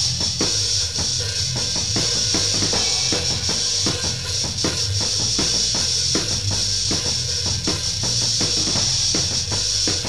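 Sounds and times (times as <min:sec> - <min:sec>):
bass line: 0:00.0 - 0:10.0
drum kit beat: 0:00.0 - 0:10.0.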